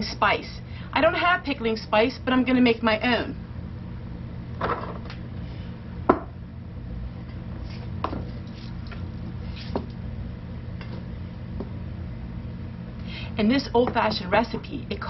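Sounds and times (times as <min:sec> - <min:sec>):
steady low hum: 0:00.0 - 0:15.0
jars knocking on counter: 0:06.1 - 0:06.3.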